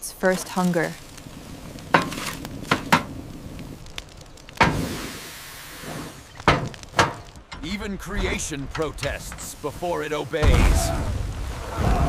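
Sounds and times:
fire whoosh: 0.3s - 12.0s
wood knocking against firebox: 1.8s - 3.2s, 4.0s - 4.8s, 6.4s - 9.6s.

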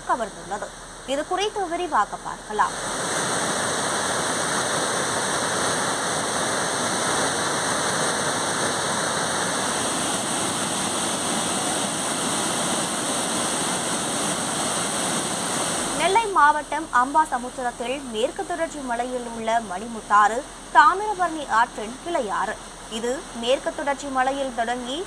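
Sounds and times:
waterfall rushing over rocks: 0.0s - 25.0s.

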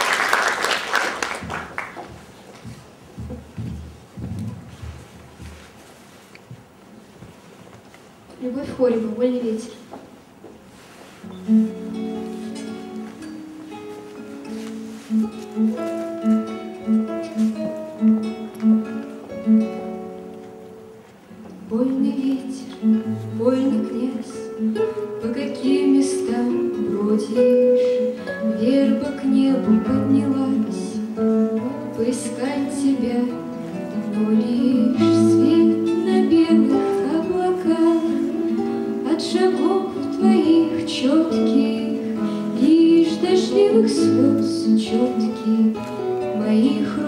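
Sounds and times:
nylon-string guitar: 10.7s - 47.0s
woman singing: 21.7s - 47.0s.

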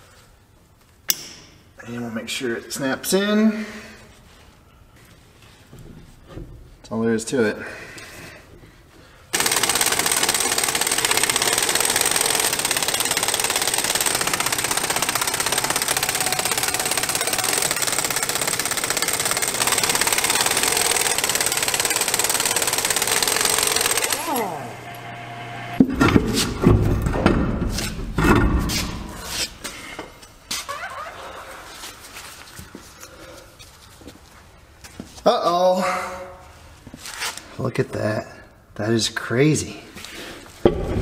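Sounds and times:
air impact wrench hammering: 9.4s - 24.9s, 40.6s - 41.0s
heavy knocks of steel wheel: 40.6s - 41.0s.

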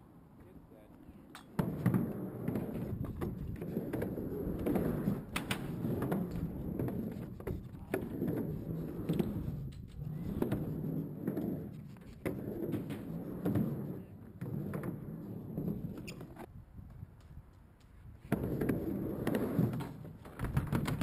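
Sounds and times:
skateboard clicks: 1.3s - 15.0s, 15.6s - 21.0s
skateboard wheels rolling on ramp: 1.5s - 21.0s.

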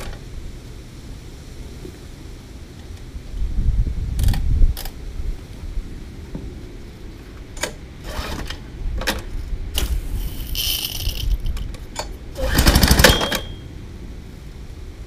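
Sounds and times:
recoil starter rasping: 12.4s - 13.4s.

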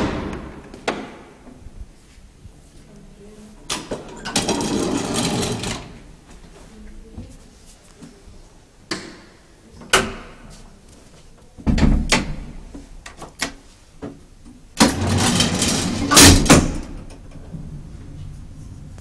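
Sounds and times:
heavy door clunk: 0.0s - 1.4s, 11.6s - 12.6s, 14.8s - 17.9s
loud door bangs: 0.0s - 1.4s, 14.8s - 17.2s
door rattling slide: 4.2s - 6.0s, 14.8s - 17.8s.

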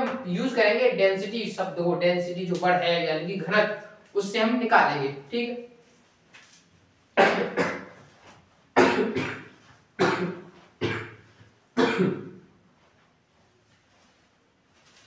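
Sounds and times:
man coughing: 7.2s - 8.0s, 8.8s - 11.2s, 11.8s - 12.5s.

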